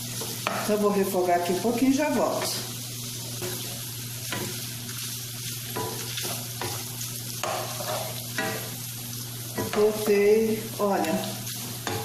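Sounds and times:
meat sizzling in a pan: 0:00.0 - 0:12.0
wooden spoon scraping: 0:07.4 - 0:08.5.

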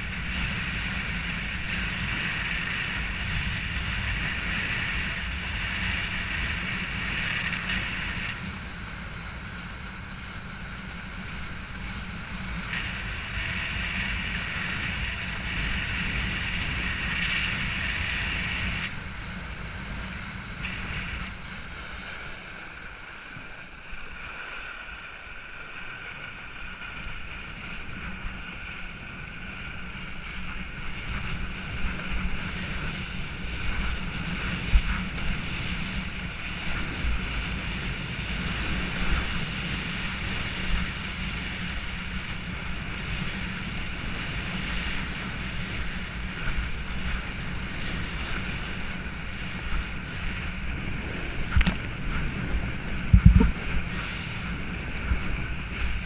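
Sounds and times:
water rushing under a board: 0:00.0 - 0:56.0
wind noise on microphone: 0:00.0 - 0:56.0
water slapping board: 0:51.3 - 0:54.2.

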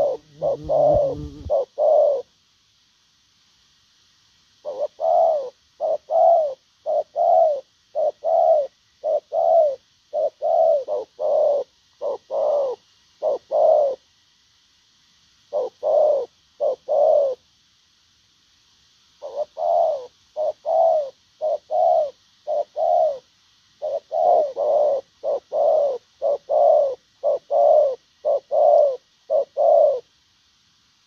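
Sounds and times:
dove cooing: 0:00.0 - 0:02.3, 0:04.6 - 0:14.0, 0:15.5 - 0:17.4, 0:19.2 - 0:30.1.

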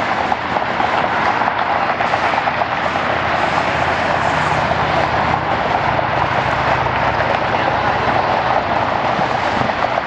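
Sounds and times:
jet engines roaring: 0:00.0 - 0:10.0.

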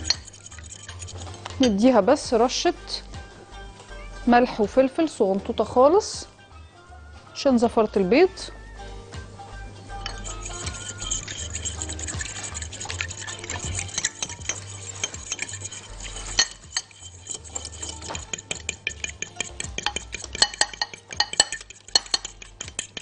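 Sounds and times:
fork clicking against glass bowl: 0:00.0 - 0:01.8, 0:10.0 - 0:23.0.

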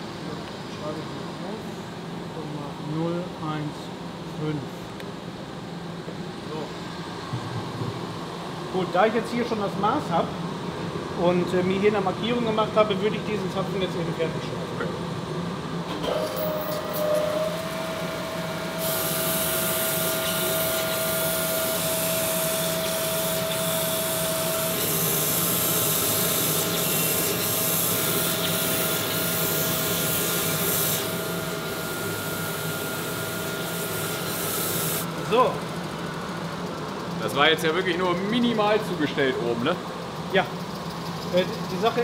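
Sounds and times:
grinding machine hum: 0:15.4 - 0:38.8
grinding wheel hiss: 0:16.4 - 0:35.1.

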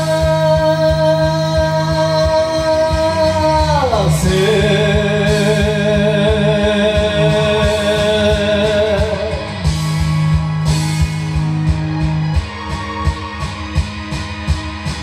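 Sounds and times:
person singing long note with vibrato: 0:00.0 - 0:09.7
rock band backing track with guitar: 0:00.0 - 0:15.0.

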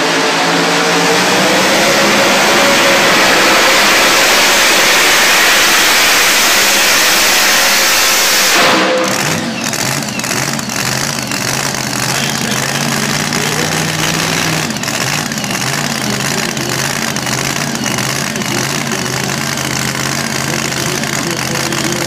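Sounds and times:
supercharged engine idling: 0:00.0 - 0:22.0.

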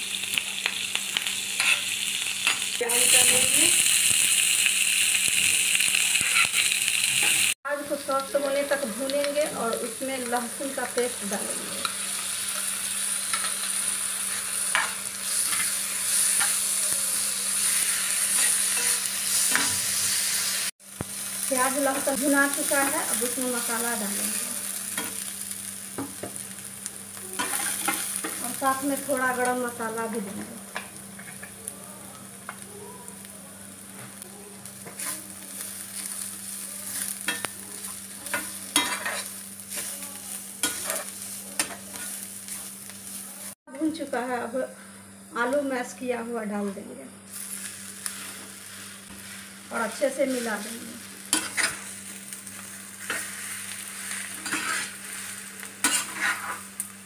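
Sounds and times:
onions sizzling in oil: 0:00.0 - 0:57.0
spoon scraping pan: 0:36.9 - 0:39.9, 0:40.6 - 0:42.7, 0:54.1 - 0:55.2, 0:55.8 - 0:56.7.

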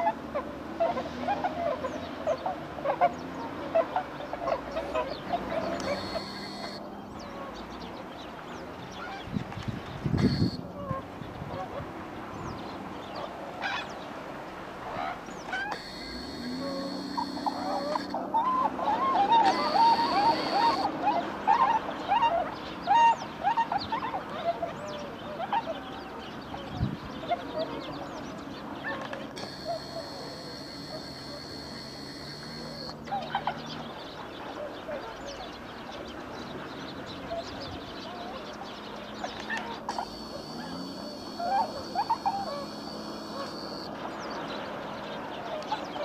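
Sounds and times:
swans calling: 0:03.8 - 0:06.8, 0:10.2 - 0:10.7, 0:15.6 - 0:21.0, 0:29.4 - 0:33.0, 0:39.8 - 0:43.9.

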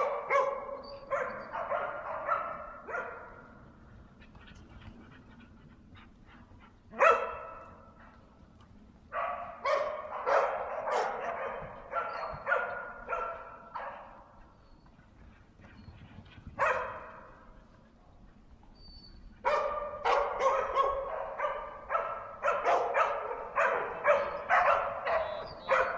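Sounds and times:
dog barking: 0:00.0 - 0:03.4, 0:06.9 - 0:07.9, 0:09.1 - 0:14.3, 0:16.6 - 0:17.3, 0:19.4 - 0:25.9.

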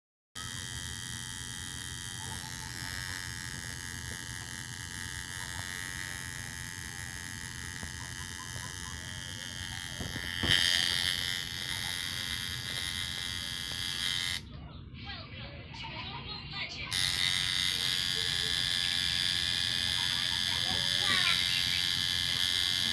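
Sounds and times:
tattoo machine buzzing: 0:00.4 - 0:14.5, 0:16.9 - 0:22.9.

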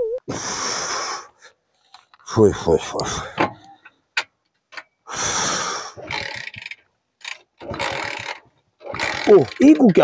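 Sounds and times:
motorcycle engine turning over: 0:06.0 - 0:10.0.

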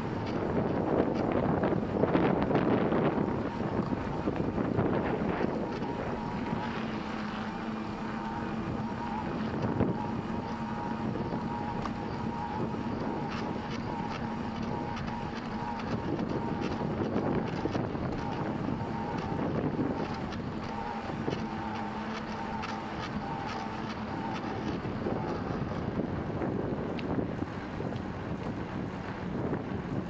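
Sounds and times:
bicycle tyres rolling on pavement: 0:00.0 - 0:30.0
steady even-pitched hum: 0:00.0 - 0:30.0
wind noise: 0:00.0 - 0:30.0
faint ticks: 0:11.2 - 0:25.5.

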